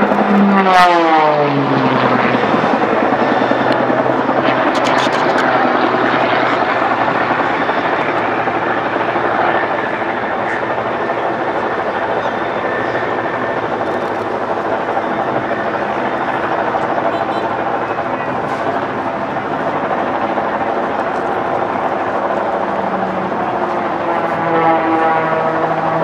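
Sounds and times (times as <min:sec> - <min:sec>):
propeller plane engine drone: 0:00.0 - 0:26.0.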